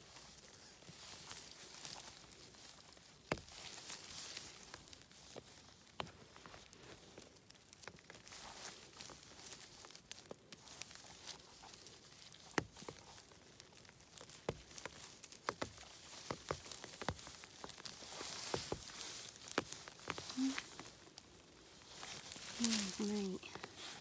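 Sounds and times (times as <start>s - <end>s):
rustling of needles and grass: 0.0s - 24.0s
sharp snaps and taps: 11.2s - 21.4s.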